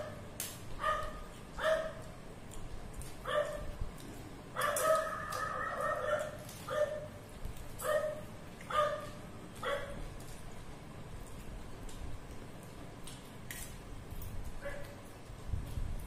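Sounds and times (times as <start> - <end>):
dog barking: 0.8 - 2.1, 3.2 - 3.7, 4.6 - 7.1, 7.8 - 10.0, 14.6 - 15.0.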